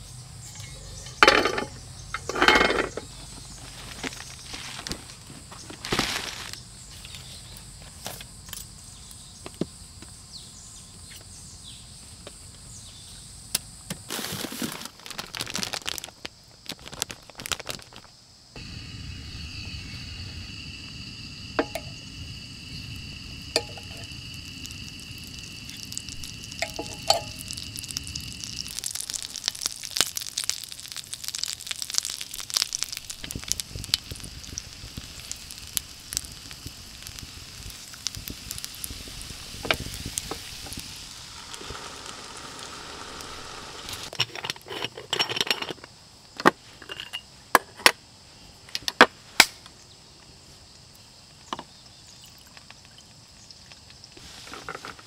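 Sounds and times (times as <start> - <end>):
kitchen gear clicks and knocks: 0.5 - 3.1, 44.1 - 45.9
dough sizzling in a waffle iron: 18.6 - 44.1.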